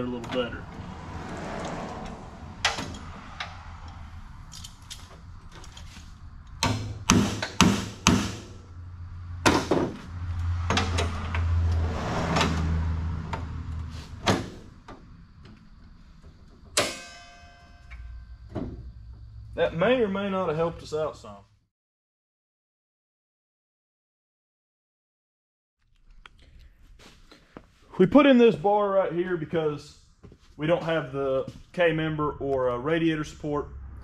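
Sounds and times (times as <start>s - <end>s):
sharp metal knocks: 6.6s - 8.6s, 9.4s - 11.4s, 16.6s - 18.9s
ringing metal clang: 16.8s - 18.4s.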